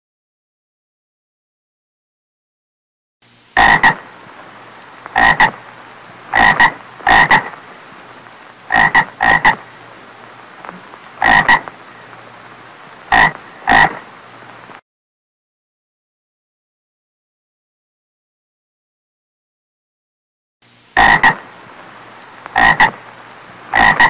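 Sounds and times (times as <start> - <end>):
frog croaking: 3.6 - 4.1, 5.1 - 5.6, 6.3 - 7.6, 8.6 - 9.7, 10.6 - 12.1, 13.0 - 14.1, 21.0 - 21.5, 22.4 - 23.0, 23.7 - 24.0.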